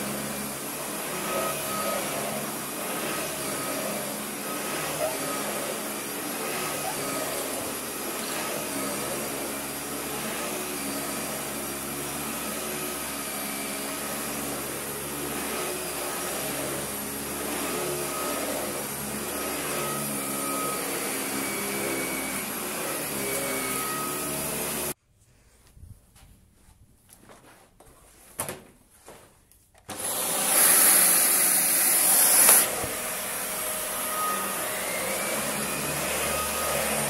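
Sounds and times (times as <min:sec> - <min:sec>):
vacuum cleaner on carpet: 0:00.0 - 0:25.0, 0:29.9 - 0:37.0.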